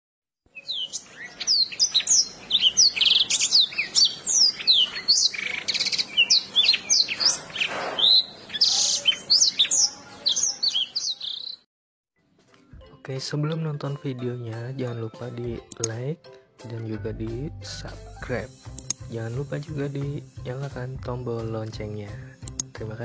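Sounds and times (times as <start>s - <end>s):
canary singing whistles and trills: 0.5s - 11.6s.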